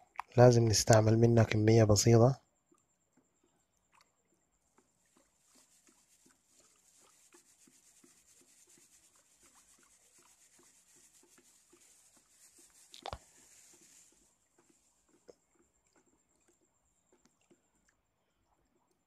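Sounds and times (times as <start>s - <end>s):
stick stirring water in bucket: 2.7s - 19.0s.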